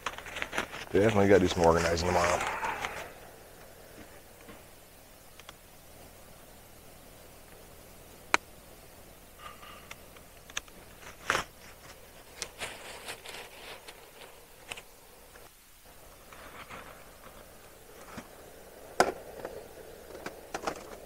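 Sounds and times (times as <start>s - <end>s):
rustling and scraping of gear: 0.0s - 4.7s, 9.4s - 21.0s.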